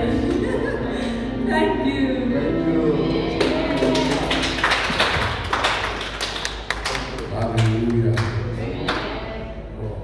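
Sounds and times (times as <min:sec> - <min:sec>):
congregation applauding: 0:03.4 - 0:09.0.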